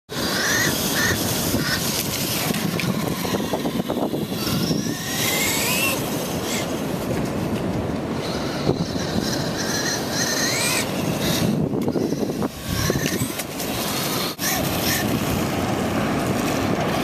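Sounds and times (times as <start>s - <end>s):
wind: 0.0s - 17.0s
toy truck electric motor whining: 0.2s - 6.8s, 8.2s - 15.2s
surf: 13.1s - 17.0s.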